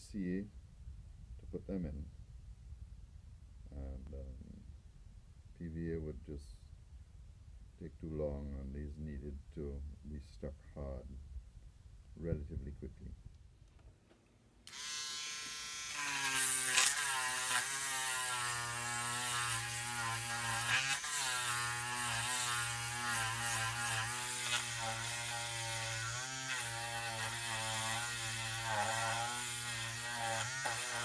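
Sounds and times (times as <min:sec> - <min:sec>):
rotary tool whining: 0:14.7 - 0:31.0.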